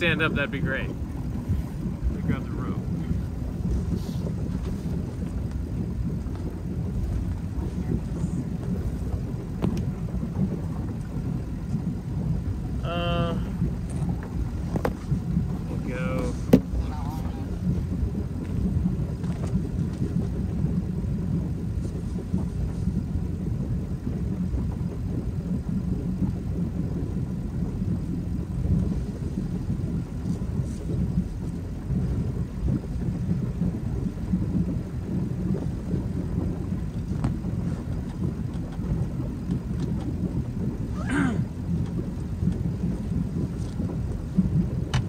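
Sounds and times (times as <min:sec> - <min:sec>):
boat engine idling: 0:00.0 - 0:45.0.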